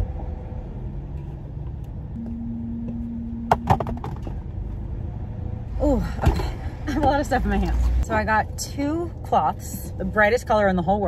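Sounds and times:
steady low rumble: 0.0s - 11.0s
sharp knocks and clatter: 3.5s - 4.4s.

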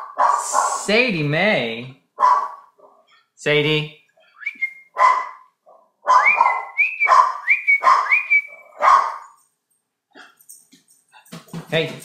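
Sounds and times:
dog barking and whining: 0.0s - 0.9s, 2.2s - 3.1s, 4.9s - 9.4s.

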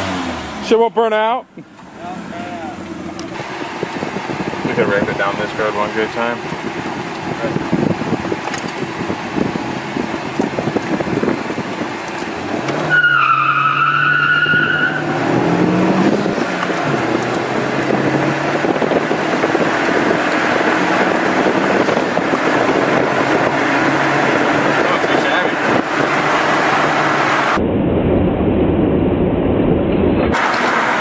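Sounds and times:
car engine accelerating: 0.0s - 27.6s, 28.4s - 31.0s
road and wind noise: 0.0s - 31.0s
tyre squeal: 12.8s - 15.2s.

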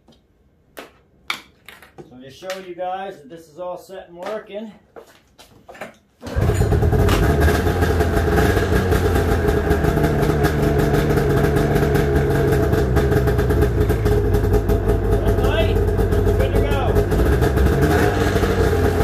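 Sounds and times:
snowmobile engine idling: 6.3s - 19.0s.

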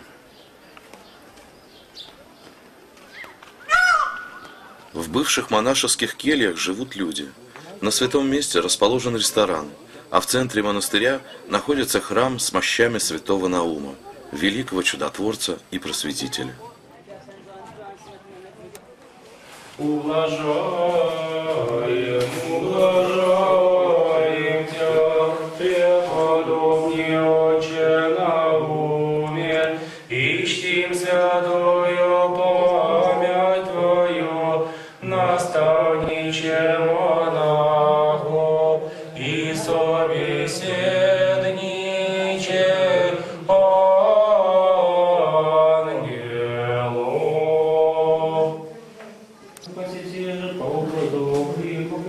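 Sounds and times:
men chanting: 19.8s - 48.7s, 49.7s - 52.0s
breaths between phrases: 29.8s - 30.1s, 34.6s - 35.0s, 38.8s - 39.2s.

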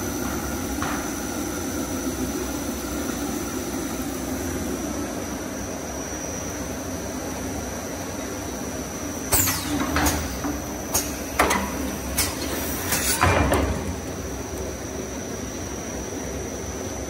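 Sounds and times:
machine humming: 0.0s - 17.0s
machine clacks and scraping: 9.3s - 13.9s.

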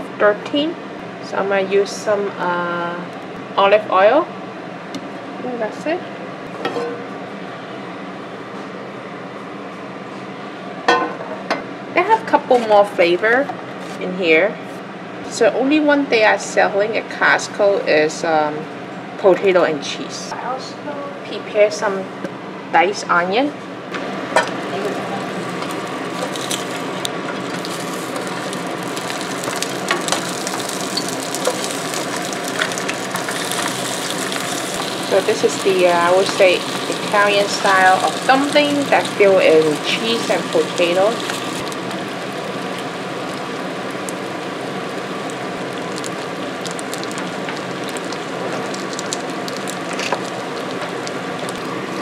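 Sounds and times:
oil sizzling in a frying pan: 24.2s - 52.0s.

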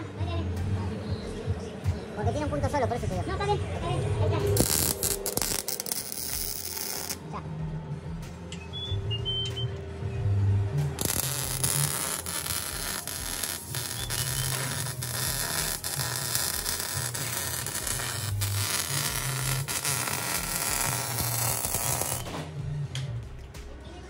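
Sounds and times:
welding arc hissing: 4.6s - 7.2s, 11.0s - 22.4s.

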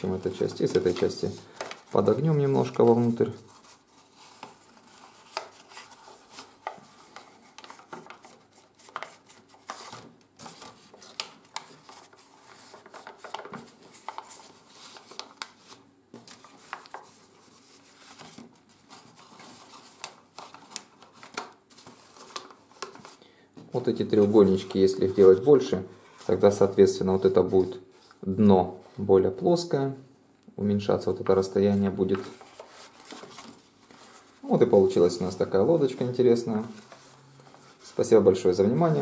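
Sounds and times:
paper rustling and crackling: 0.0s - 28.1s, 31.3s - 39.0s.

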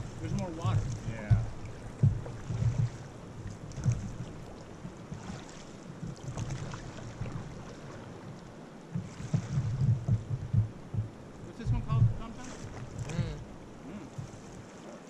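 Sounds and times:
low rumbling on microphone: 0.0s - 14.7s
river water rushing and splashing: 0.0s - 15.0s.

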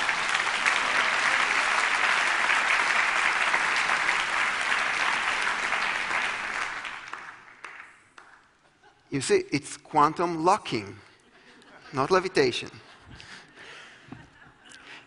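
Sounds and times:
crowd clapping: 0.0s - 8.8s.

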